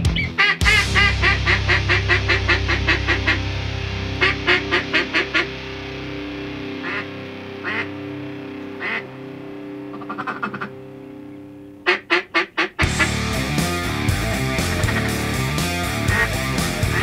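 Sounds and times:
background music: 0.0 - 17.0
ducks quacking: 0.2 - 3.4, 4.2 - 5.5, 6.8 - 8.0, 8.6 - 9.1, 9.8 - 10.8, 11.8 - 17.0.

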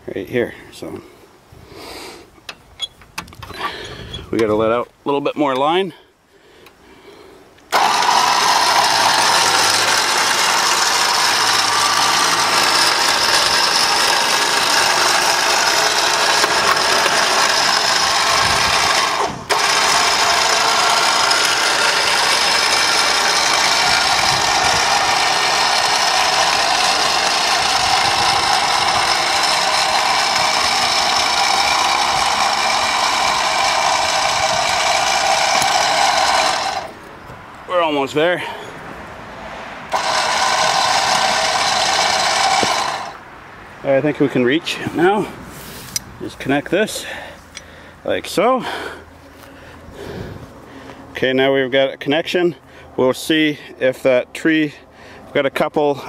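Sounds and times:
electric winch motor whine: 7.7 - 37.0, 39.9 - 43.2.

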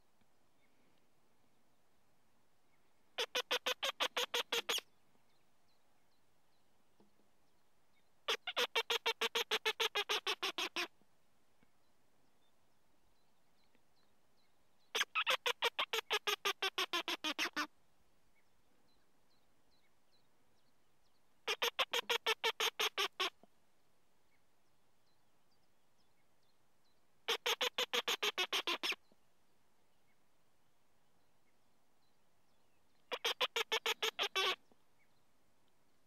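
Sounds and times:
mouse-squeak fox call: 3.2 - 4.8, 15.0 - 17.7, 21.5 - 23.3, 27.3 - 29.0, 33.1 - 34.6.

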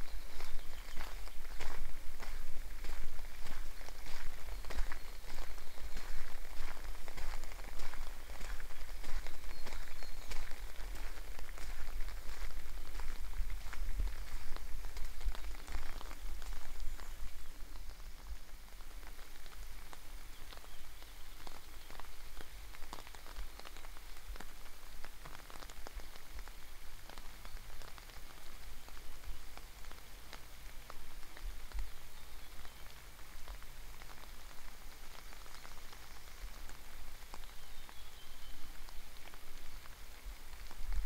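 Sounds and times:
wind rumbling on microphone: 0.0 - 18.5.

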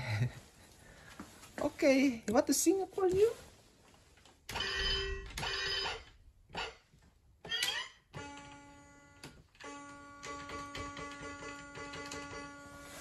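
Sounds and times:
tinny electronic toy tune: 4.5 - 6.8, 7.4 - 13.0
toy ringing bursts: 4.5 - 6.8.

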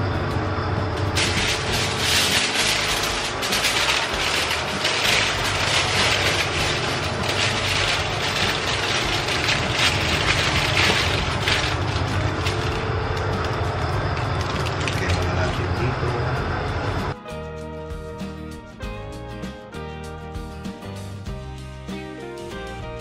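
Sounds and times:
steady low hum: 0.0 - 17.2
aluminium foil crinkling: 1.1 - 15.9.

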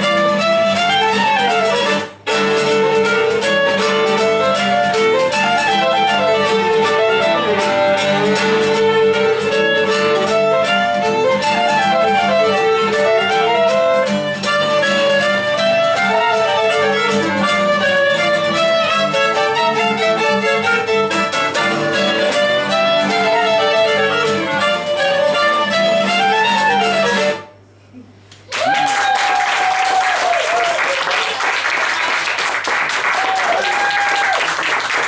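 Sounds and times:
violin clarinet and guitar folk tune: 0.0 - 27.6
person whooping: 28.5 - 31.4, 33.0 - 34.6
audience applause: 28.5 - 35.0.

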